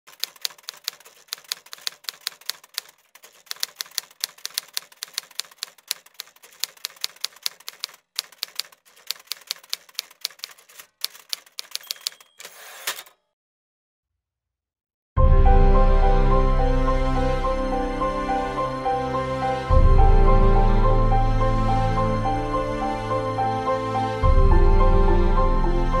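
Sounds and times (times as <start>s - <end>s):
typewriter key strikes: 0.1s - 13.1s.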